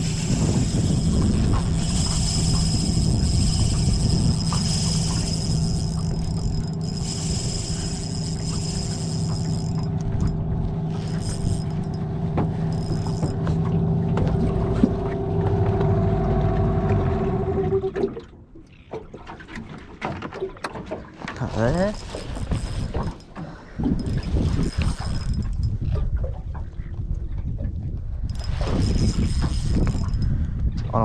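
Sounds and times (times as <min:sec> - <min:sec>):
outboard motor running: 0:00.0 - 0:31.0.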